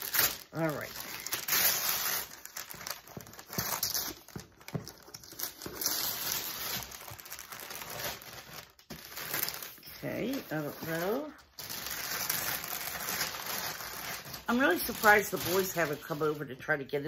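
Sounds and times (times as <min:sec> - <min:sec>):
paper and cardboard rustling: 0:00.0 - 0:16.4.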